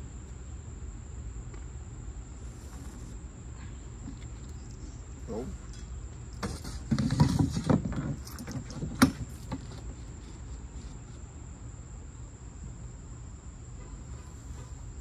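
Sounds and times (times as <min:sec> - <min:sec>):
crickets buzzing: 0:00.0 - 0:15.0
low outdoor rumble: 0:00.0 - 0:15.0.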